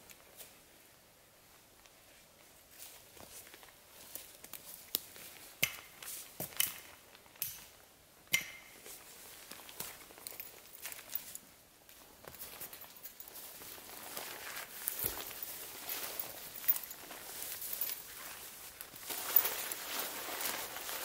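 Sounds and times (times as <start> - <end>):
footsteps crunching through snow: 12.2 - 21.0.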